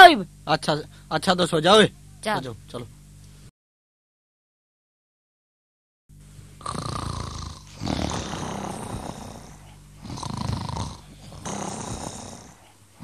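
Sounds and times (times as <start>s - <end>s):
people snoring: 6.6s - 13.0s.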